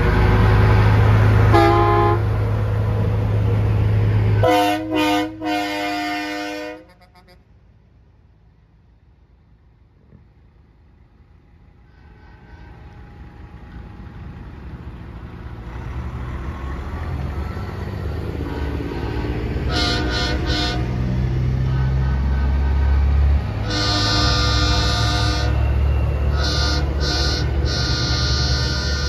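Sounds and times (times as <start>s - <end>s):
truck engine rumble: 0.0s - 29.0s
truck air horn blasts: 1.5s - 2.4s, 4.4s - 7.5s, 11.9s - 13.2s, 18.4s - 29.0s.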